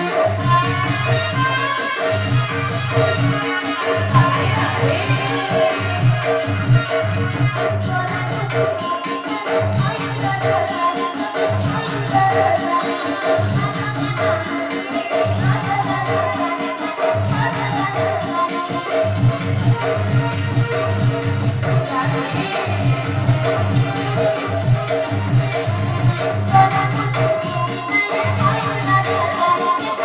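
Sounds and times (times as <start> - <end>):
music with steady bass beat: 0.0 - 30.0
sustained pitched tones: 2.3 - 8.9.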